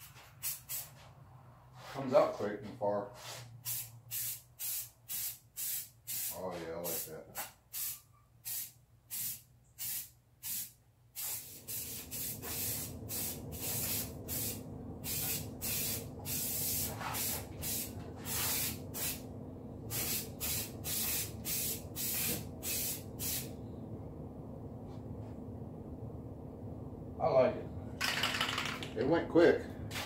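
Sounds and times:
spray bursts: 0.4 - 1.0, 3.6 - 19.2, 19.9 - 23.5.

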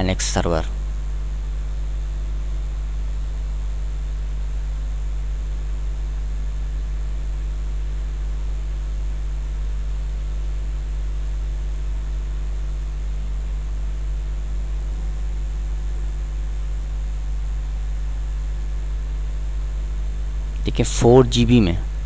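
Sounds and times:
constant hiss: 0.0 - 22.0
low electrical hum: 0.0 - 22.0.

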